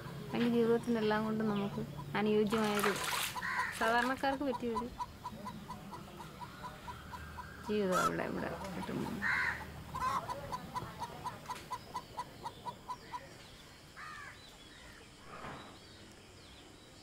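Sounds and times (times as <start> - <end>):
faint bird calls: 0.0 - 17.0
chicken clucking: 0.4 - 13.5.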